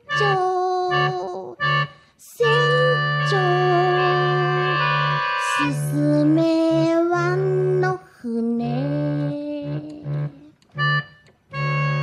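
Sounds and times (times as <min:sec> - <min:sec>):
organ music: 0:00.0 - 0:06.2, 0:09.1 - 0:12.0.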